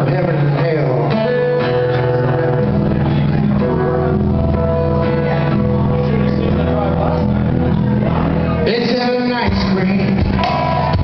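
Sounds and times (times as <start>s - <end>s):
electric guitar: 0.0s - 11.0s
strummed acoustic guitar: 0.0s - 11.0s
cajon beat: 9.5s - 11.0s.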